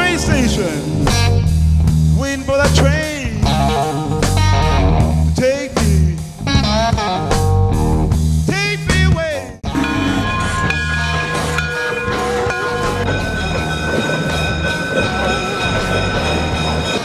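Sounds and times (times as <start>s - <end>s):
blues-rock electric guitar: 0.0s - 9.0s
bass line: 0.0s - 14.5s.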